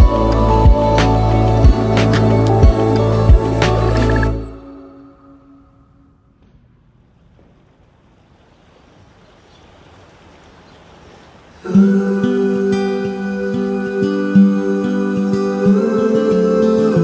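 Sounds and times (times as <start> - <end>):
faint hiss: 0.1 - 17.0
strummed acoustic guitar music: 11.8 - 17.0.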